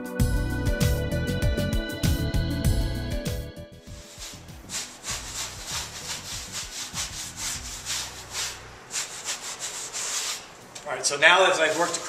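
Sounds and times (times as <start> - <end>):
damp sponge scrubbing plaster wall: 3.9 - 12.0.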